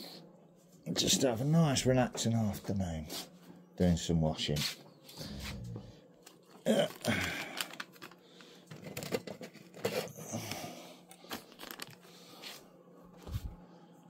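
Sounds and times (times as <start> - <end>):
crackly scrapes: 6.3 - 10.6.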